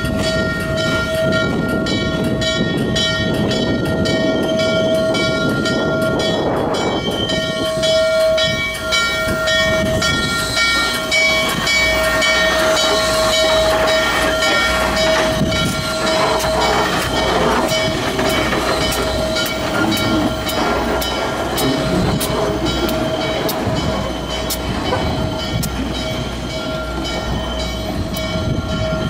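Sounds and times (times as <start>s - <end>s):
steam locomotive bell ringing: 0.0s - 29.0s
steam locomotive engine rumble: 0.0s - 29.0s.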